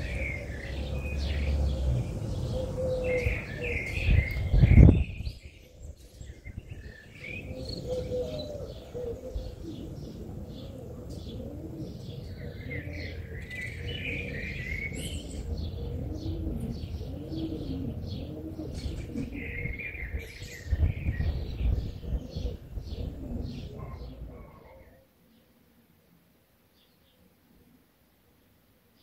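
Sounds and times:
dove cooing: 0:00.0 - 0:25.1
small birds chirping: 0:00.0 - 0:25.6.

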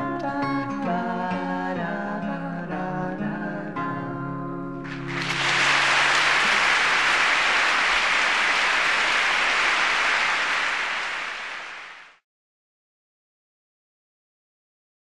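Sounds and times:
audience applause: 0:04.9 - 0:12.2.

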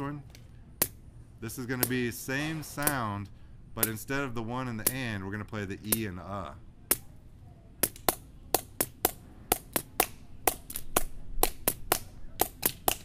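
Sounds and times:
stick tapping rhythm: 0:01.8 - 0:02.0, 0:03.8 - 0:04.1, 0:07.8 - 0:13.0.

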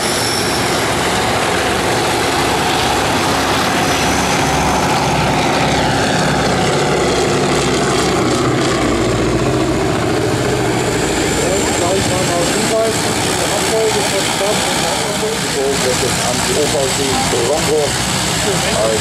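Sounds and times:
propeller plane flying past: 0:00.0 - 0:19.0
turboprop engines idling: 0:00.0 - 0:19.0.

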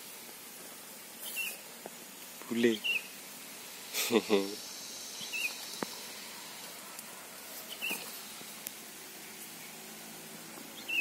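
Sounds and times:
steady outdoor hiss: 0:00.0 - 0:11.0
small bird chirping: 0:01.2 - 0:01.7, 0:02.5 - 0:03.2, 0:04.6 - 0:06.6, 0:07.6 - 0:09.8, 0:10.7 - 0:11.0.

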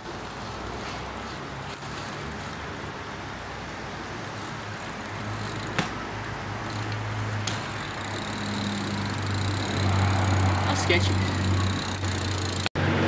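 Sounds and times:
outdoor noise: 0:00.0 - 0:13.0
low engine hum: 0:03.3 - 0:13.0.

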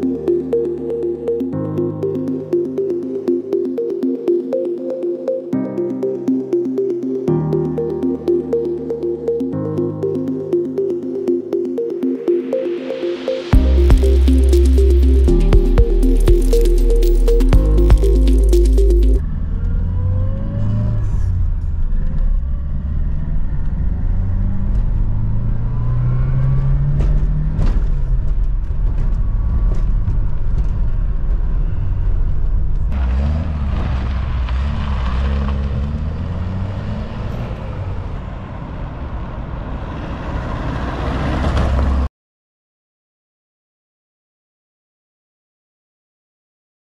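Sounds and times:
road noise: 0:19.2 - 0:42.1.

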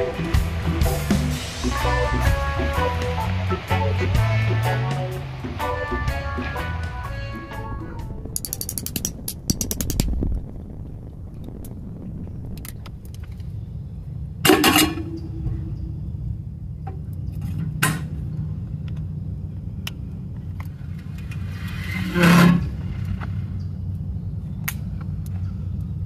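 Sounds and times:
steady low rumble: 0:00.0 - 0:26.0.

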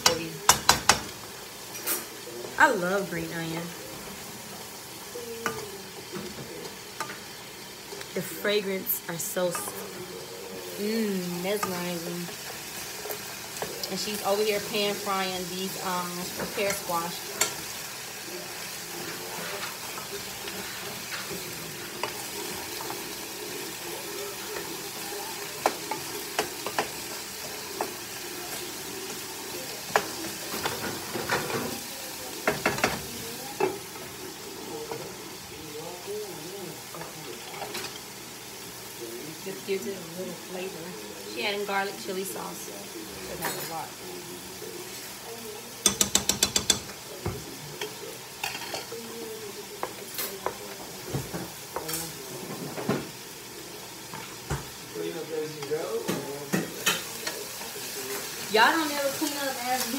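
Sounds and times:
food sizzling in a pan: 0:00.0 - 0:59.9
wood knocking against pan: 0:00.5 - 0:01.2, 0:45.8 - 0:47.4
metal spoon clicks on pan: 0:45.8 - 0:46.9.

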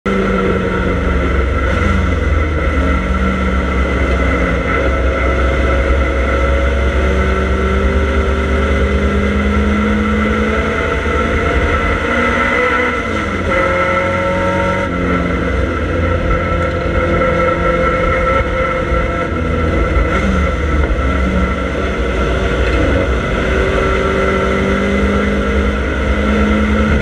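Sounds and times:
race car engine at full throttle: 0:00.0 - 0:27.0
road and wind noise: 0:00.1 - 0:27.0.

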